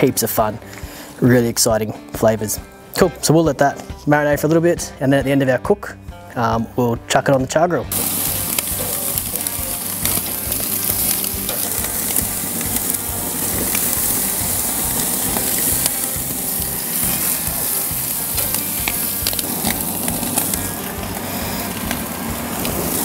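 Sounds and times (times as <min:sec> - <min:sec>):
chicken sizzling on grill: 0:07.9 - 0:23.0
crackling pops from coals: 0:07.9 - 0:23.0.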